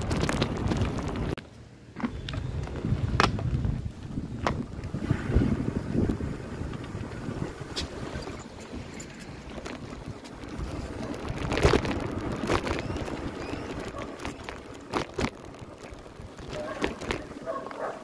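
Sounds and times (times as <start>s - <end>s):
bicycle tyres rumbling on road: 0.0s - 17.7s
wind buffeting microphone: 2.3s - 8.2s
sharp knocks and rattles: 7.6s - 10.9s, 13.0s - 15.0s.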